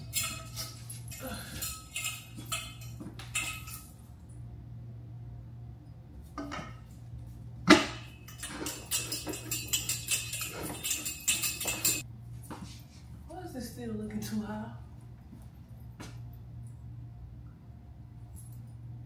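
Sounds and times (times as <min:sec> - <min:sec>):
metal parts clinking and rattling: 0:00.0 - 0:04.0, 0:07.7 - 0:12.1
steady low hum: 0:00.0 - 0:19.0.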